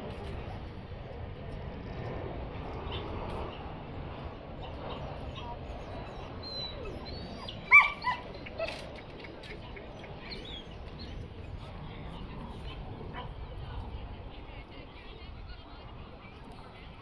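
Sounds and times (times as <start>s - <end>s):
outdoor background noise: 0.0s - 17.0s
dog barking: 7.7s - 8.2s.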